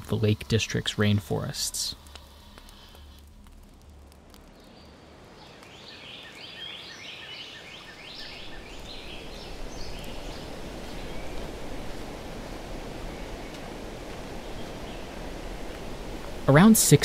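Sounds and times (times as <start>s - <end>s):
songbird singing: 4.4s - 17.0s
steady rushing noise: 8.2s - 17.0s.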